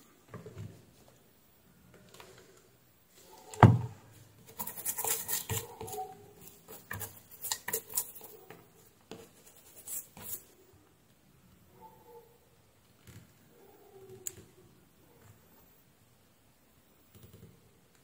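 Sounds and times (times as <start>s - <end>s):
knock on workbench: 3.6s - 3.9s
small parts scraping and clicking: 4.5s - 8.4s.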